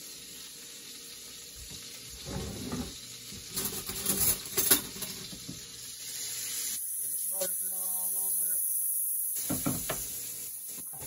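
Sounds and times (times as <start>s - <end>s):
food sizzling in a frying pan: 0.0s - 11.0s
kitchen scrapes and clatters: 2.1s - 5.6s.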